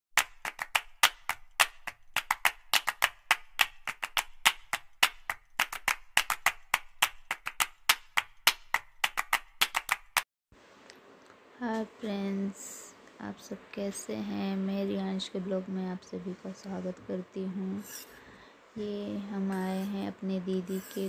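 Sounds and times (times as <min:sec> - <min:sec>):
sharp hand claps: 0:00.2 - 0:10.2.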